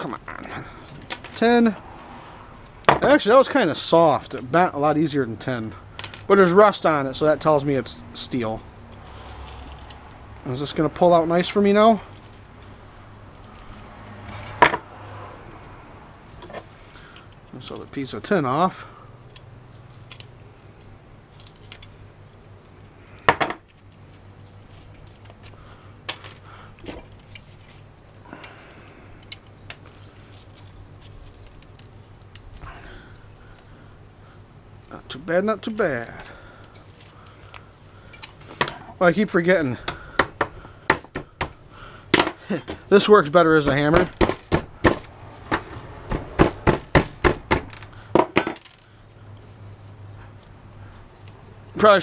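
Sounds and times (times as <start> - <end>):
metallic clicks of pliers: 28.4 - 29.8.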